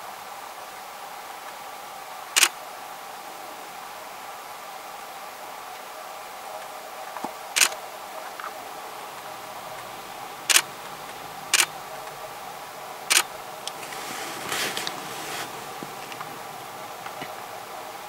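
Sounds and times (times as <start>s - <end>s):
camera shutter clicks: 2.4s - 2.6s, 7.6s - 7.8s, 10.5s - 10.7s, 11.5s - 11.7s
rustling: 7.1s - 18.0s.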